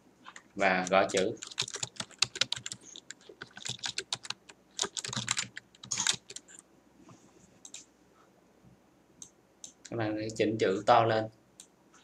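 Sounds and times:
computer keyboard typing: 0.8s - 6.6s.

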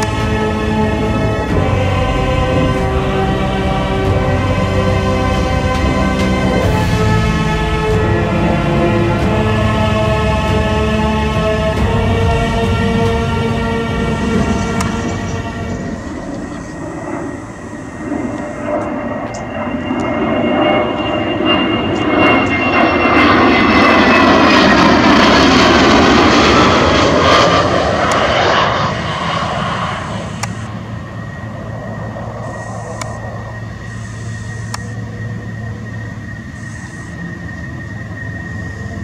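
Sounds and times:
fighter jet flying past: 0.0s - 39.0s.

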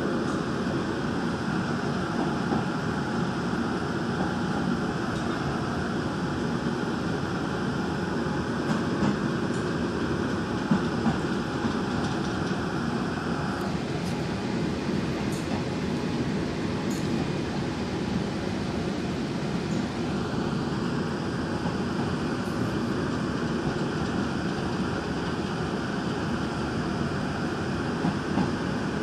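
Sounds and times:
train rumbling along track: 0.0s - 29.0s.

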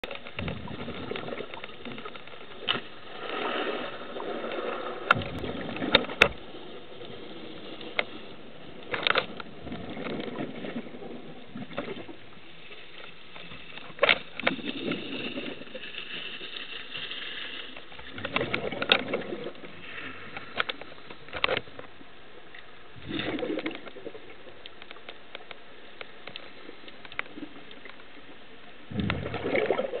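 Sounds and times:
exhaled bubbles gurgling: 0.3s - 2.1s, 3.1s - 6.1s, 23.0s - 24.4s, 28.8s - 30.0s.

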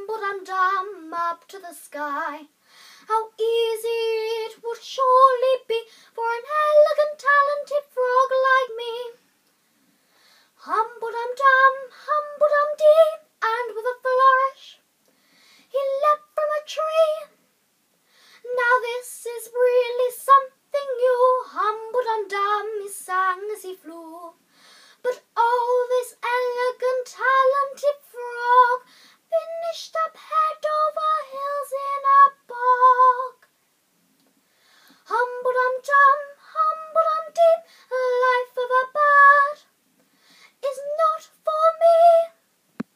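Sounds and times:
girl singing unaccompanied: 0.0s - 9.3s, 10.5s - 14.9s, 15.6s - 17.4s, 18.2s - 33.6s, 34.8s - 39.8s, 40.4s - 42.9s.

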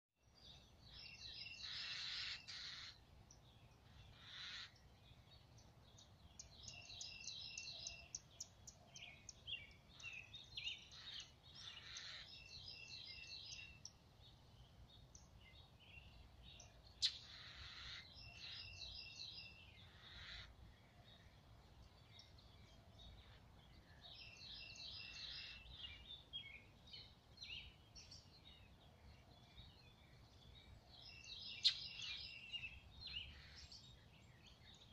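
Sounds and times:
mockingbird singing: 0.9s - 14.0s, 15.0s - 34.9s.

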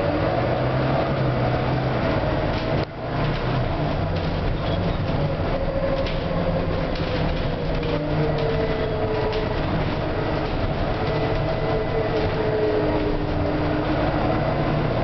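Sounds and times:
bus engine drone: 0.0s - 15.0s.

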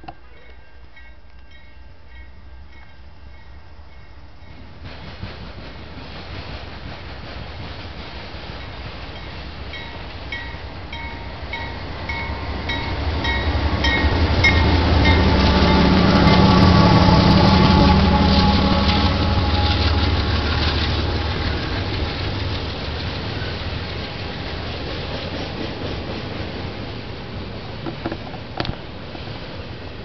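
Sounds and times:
train bell ringing: 0.0s - 4.7s, 8.6s - 19.9s
diesel locomotive engine rumble: 0.0s - 30.0s
freight cars rolling: 8.4s - 30.0s.

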